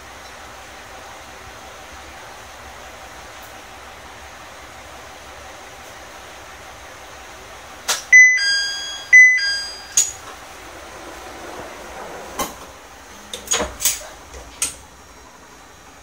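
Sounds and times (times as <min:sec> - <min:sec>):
two-note electronic chime: 0:08.2 - 0:10.2.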